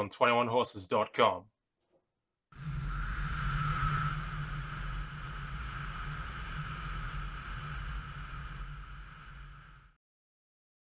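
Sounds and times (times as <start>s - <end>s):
motorcycle engine drone: 2.6s - 10.0s
wind rushing over microphone: 2.6s - 10.0s.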